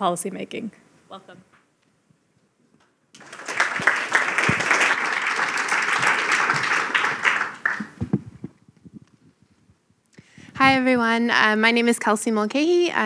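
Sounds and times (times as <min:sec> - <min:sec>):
audience applauding: 0:03.2 - 0:08.2.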